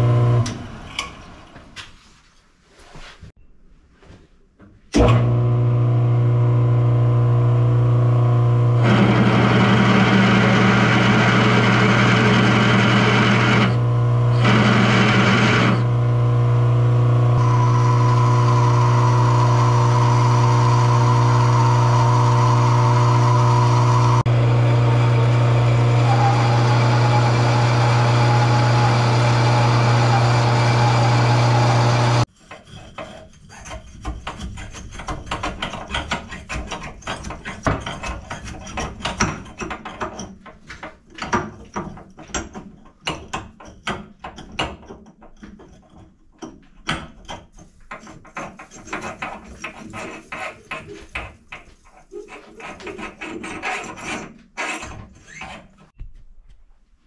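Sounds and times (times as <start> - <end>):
lathe motor hum: 5.0 - 32.3.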